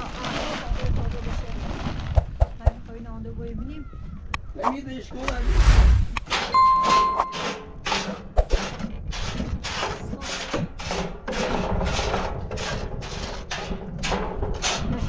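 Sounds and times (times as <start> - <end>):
hand saw cutting wood: 7.8 - 15.0.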